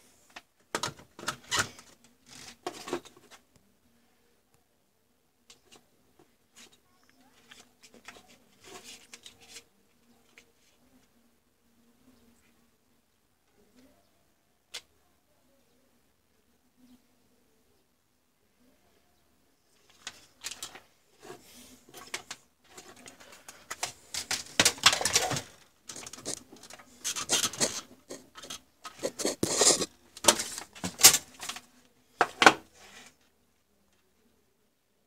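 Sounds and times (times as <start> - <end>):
wires and packaging rustling: 0.2 - 3.6, 6.5 - 11.1, 19.7 - 33.3.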